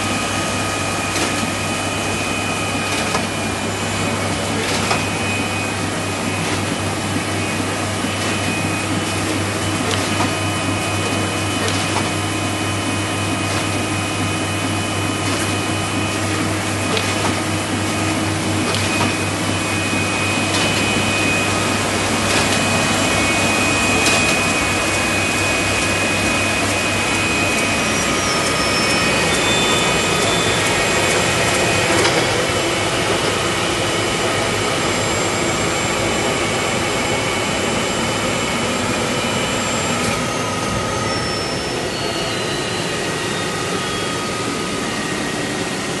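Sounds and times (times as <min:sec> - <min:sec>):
printing press fans and motors whirring: 0:00.0 - 0:46.0
high whining tones: 0:18.3 - 0:46.0.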